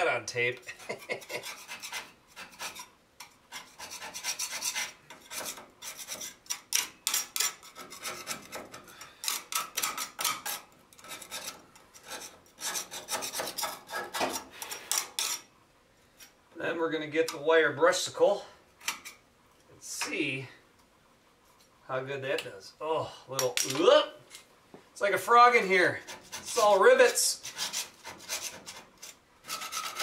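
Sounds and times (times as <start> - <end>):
scraping rust off steel: 0.0 - 16.4, 25.3 - 30.0.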